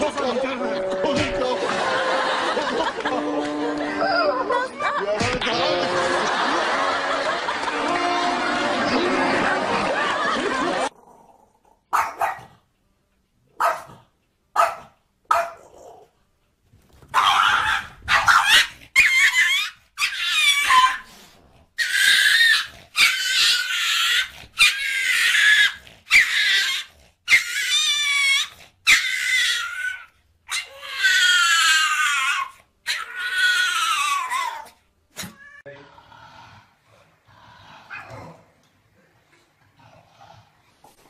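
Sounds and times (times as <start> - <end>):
dogs barking: 11.9 - 12.6, 13.6 - 14.0, 14.6 - 15.9, 17.1 - 21.0
high-pitched wavering dog cries: 17.2 - 21.0, 21.8 - 34.7.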